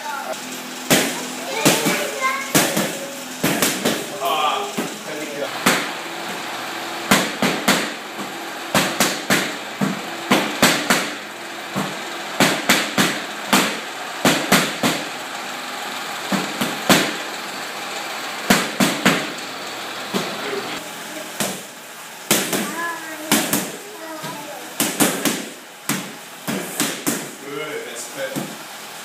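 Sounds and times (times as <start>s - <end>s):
boxing gloves slapping mitts: 0.9s - 4.1s, 5.6s - 5.9s, 7.1s - 11.2s, 11.8s - 15.1s, 16.3s - 17.2s, 18.5s - 19.3s, 21.4s - 21.7s, 22.3s - 27.4s.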